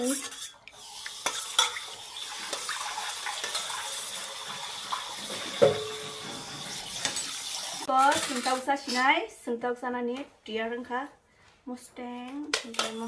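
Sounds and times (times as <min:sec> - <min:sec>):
water sloshing in a metal bowl: 0:00.0 - 0:08.6.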